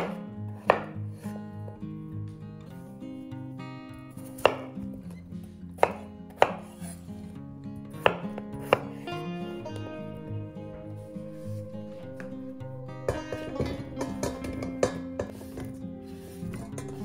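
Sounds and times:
knife chopping on cutting board: 0.0s - 1.3s, 4.4s - 4.7s, 5.8s - 6.8s, 8.0s - 9.0s
soft background music: 0.0s - 17.0s.

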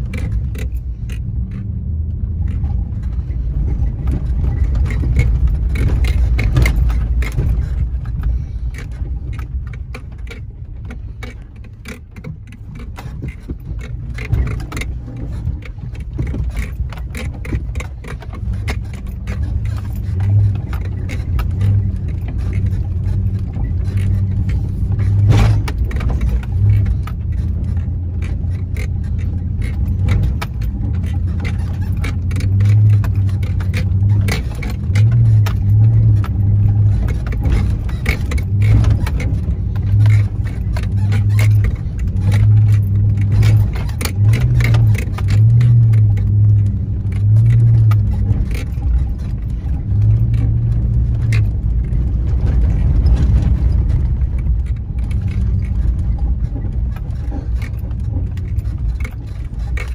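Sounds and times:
rocks knocking under tyres: 0.0s - 59.9s
truck engine running under load: 0.0s - 59.9s.

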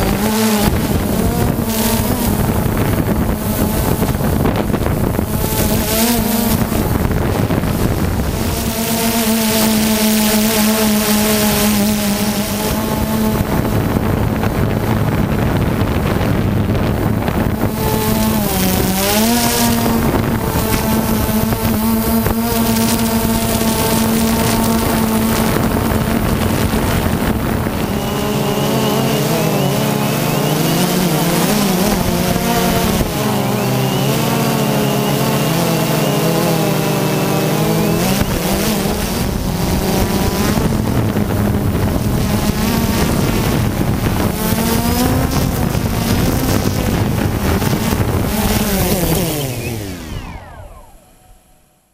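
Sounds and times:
drone motors whining: 0.0s - 51.9s
rushing air: 11.4s - 51.6s.

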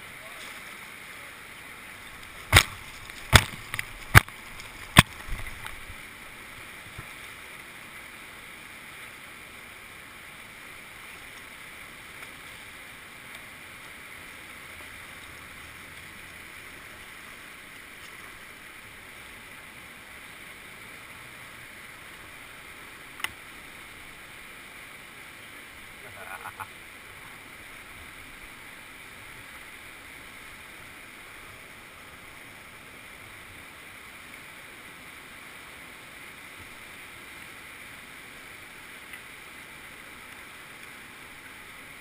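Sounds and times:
sharp knocks: 2.5s - 4.3s.

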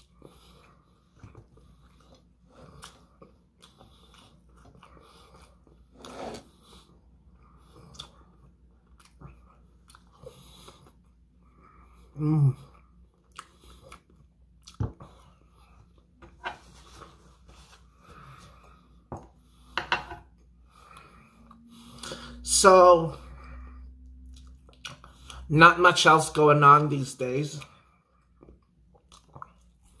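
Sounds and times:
person chewing crunchy food: 0.0s - 17.0s, 23.9s - 25.5s, 28.2s - 30.0s.

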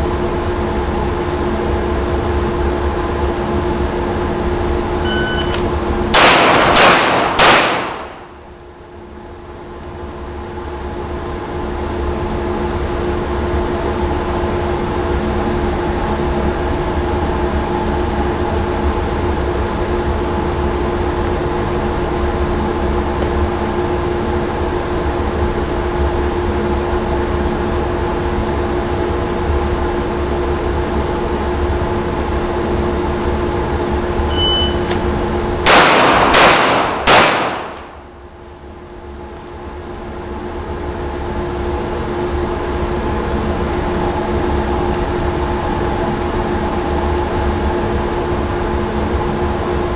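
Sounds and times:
ventilation hum: 0.0s - 49.9s
shot timer beeping: 5.0s - 5.6s, 34.3s - 34.9s
pistol shots: 5.4s - 8.4s, 35.7s - 38.1s.

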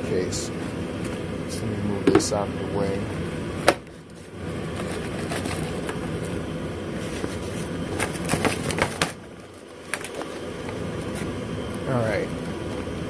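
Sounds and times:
rustling handling noise: 4.1s - 11.4s.

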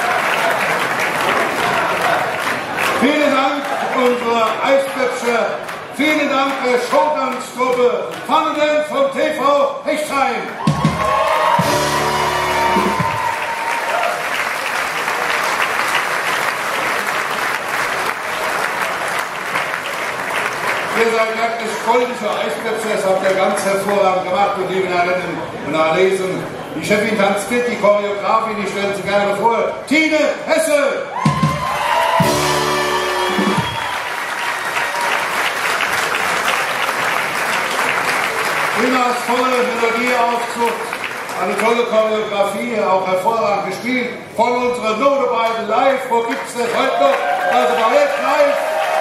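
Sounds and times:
audience applauding: 0.0s - 8.3s, 10.6s - 24.0s, 31.2s - 42.0s, 46.3s - 49.0s
dance music held note: 10.7s - 13.4s, 31.2s - 34.0s
held music chord: 32.2s - 33.6s.

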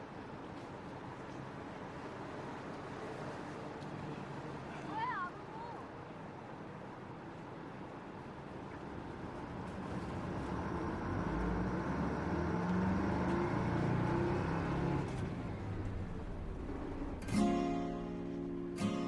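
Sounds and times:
bus engine and road noise: 0.0s - 19.0s
acoustic guitar strum: 17.2s - 19.0s.

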